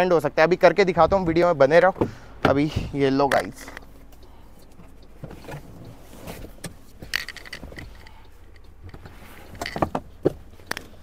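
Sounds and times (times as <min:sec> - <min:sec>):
car seat folding clicks and knocks: 0:08.8 - 0:11.0.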